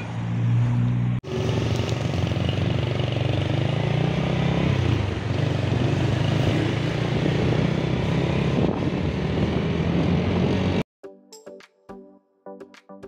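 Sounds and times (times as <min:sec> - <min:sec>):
motorcycle engine running: 0:01.2 - 0:10.8
wind rush: 0:05.6 - 0:10.8.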